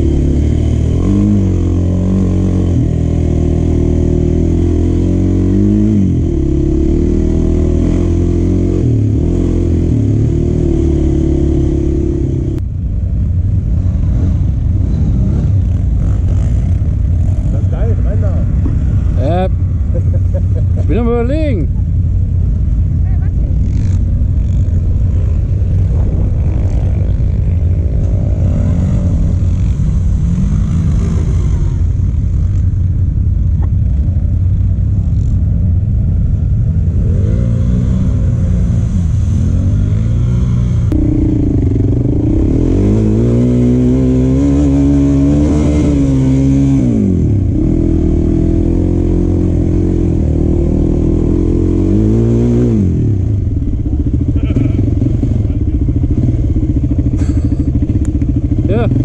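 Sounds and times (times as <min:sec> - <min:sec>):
quad bike engine revving: 0:00.0 - 0:12.6, 0:14.0 - 0:19.5, 0:23.5 - 0:32.8, 0:36.7 - 0:59.0
quad bike engines idling: 0:15.6 - 0:26.3, 0:52.7 - 0:59.0.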